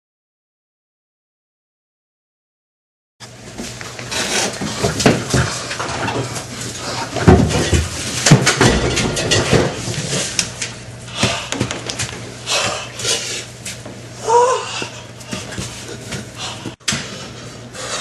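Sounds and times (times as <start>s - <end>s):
steady low hum: 3.2s - 18.0s
objects knocking and clattering: 4.3s - 12.2s.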